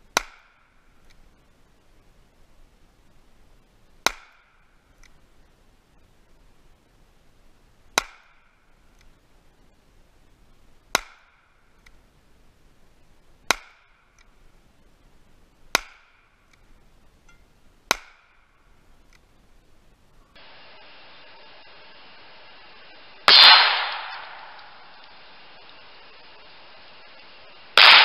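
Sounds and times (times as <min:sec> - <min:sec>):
handgun shots: 0:23.3 - 0:24.7, 0:27.8 - 0:28.0.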